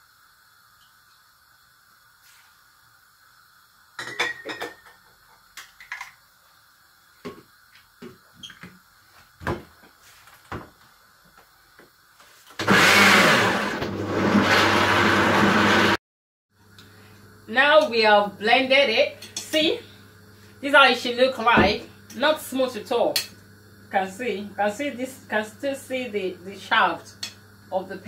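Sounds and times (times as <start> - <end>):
blender running loudly: 12.6 - 16.0.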